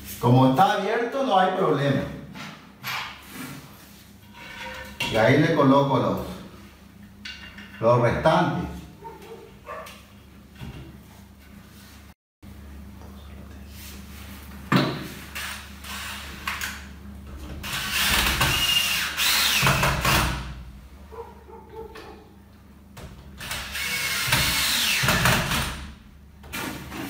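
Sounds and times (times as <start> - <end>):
drill-driver motor whining: 17.8 - 19.8, 23.4 - 25.2.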